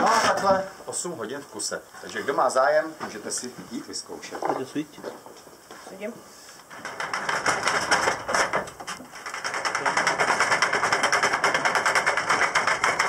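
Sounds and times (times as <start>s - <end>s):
hand winch hauling bucket: 6.8s - 13.0s.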